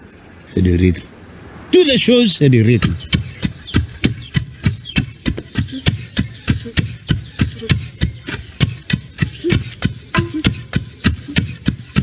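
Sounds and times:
wooden pestles pounding grain: 0:02.7 - 0:12.0.

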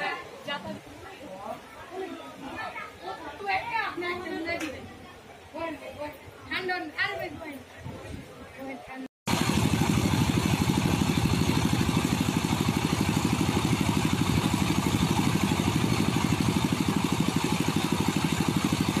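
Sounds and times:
loud pulsing buzz: 0:09.3 - 0:19.0.

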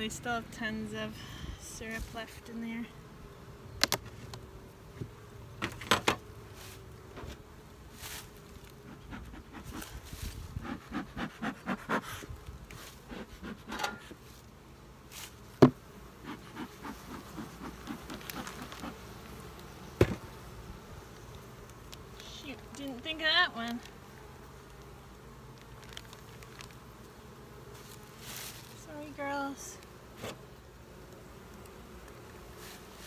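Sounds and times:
honey bees buzzing: 0:00.0 - 0:33.0
hive tool knocking on wood: 0:15.6 - 0:19.0, 0:20.0 - 0:20.3.

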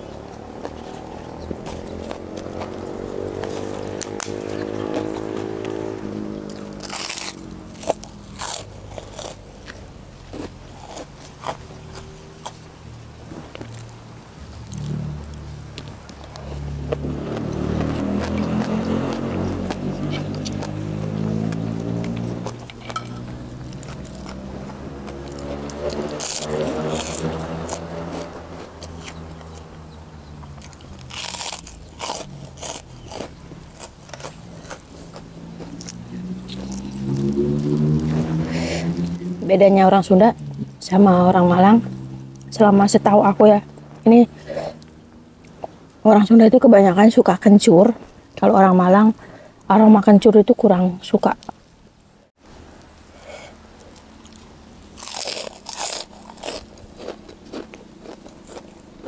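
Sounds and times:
person crunching a crisp cracker: 0:06.4 - 0:12.6, 0:21.5 - 0:29.6, 0:30.6 - 0:38.1, 0:53.8 - 0:59.0.

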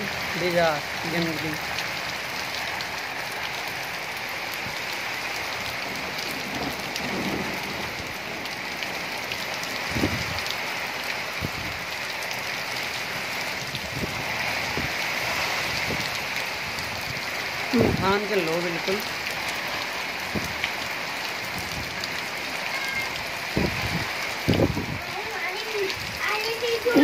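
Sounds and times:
heavy rain on rooftop and trees: 0:00.0 - 0:27.0
wind thumping microphone: 0:09.7 - 0:10.5, 0:11.4 - 0:11.8, 0:13.6 - 0:18.0, 0:20.2 - 0:20.6, 0:23.5 - 0:25.2.

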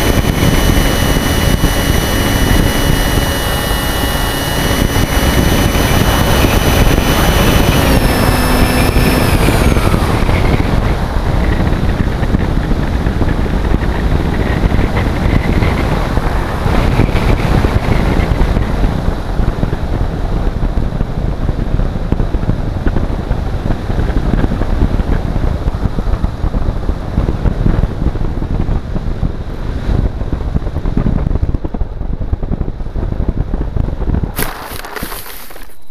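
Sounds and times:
model aircraft motor whine: 0:00.0 - 0:18.8, 0:34.4 - 0:35.9
wind rushing over microphone: 0:00.0 - 0:35.9.

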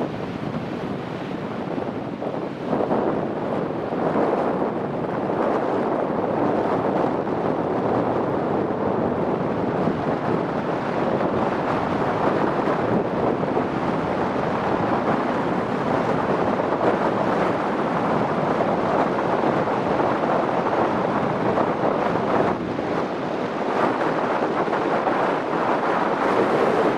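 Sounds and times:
strong wind on microphone: 0:00.0 - 0:26.9
surf breaking on beach: 0:00.0 - 0:26.9.

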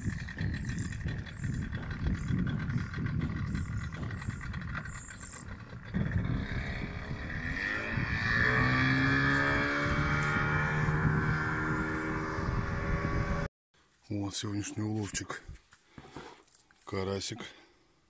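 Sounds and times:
outboard motor revving: 0:00.0 - 0:13.5.

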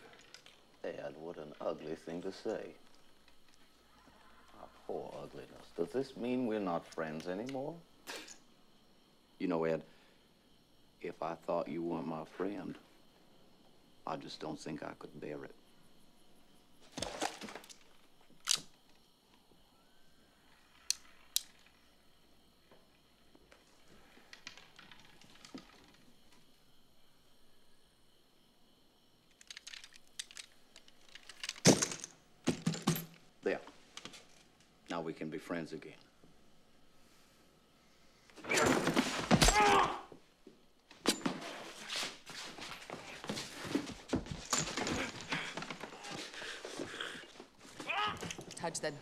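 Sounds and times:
man crying out: 0:39.4 - 0:40.2, 0:47.8 - 0:48.3
heavy breathing and grunts: 0:44.8 - 0:48.2.

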